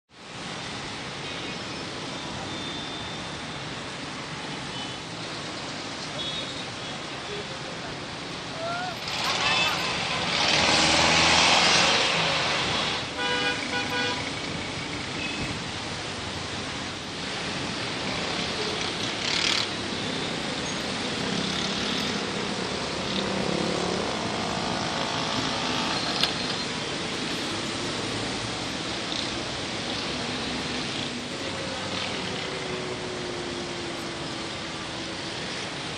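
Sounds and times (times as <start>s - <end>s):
road traffic: 0.1s - 35.9s
vehicle engines running: 7.6s - 35.9s.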